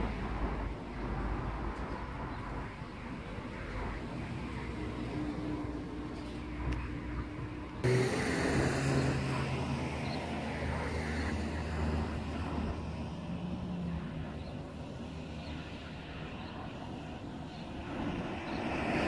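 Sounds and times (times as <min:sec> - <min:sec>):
vehicle engine droning: 0:04.6 - 0:14.5.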